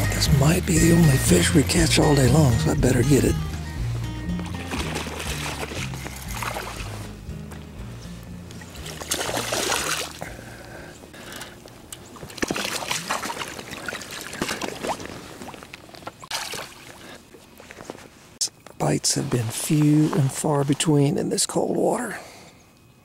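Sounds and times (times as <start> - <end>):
water splashing and dripping: 4.3 - 7.7, 8.5 - 10.3, 11.9 - 17.2.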